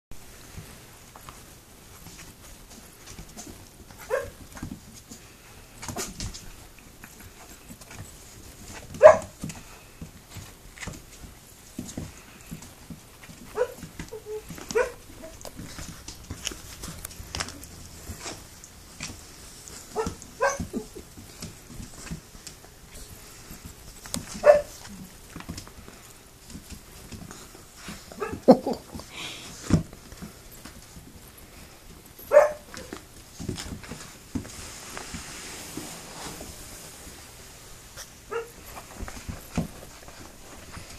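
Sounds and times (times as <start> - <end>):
puppies scuffling: 0.2 - 40.9
puppy yelp: 4.0 - 4.4, 9.0 - 9.4, 13.6 - 15.4, 20.0 - 20.9, 24.4 - 24.8, 32.3 - 32.9.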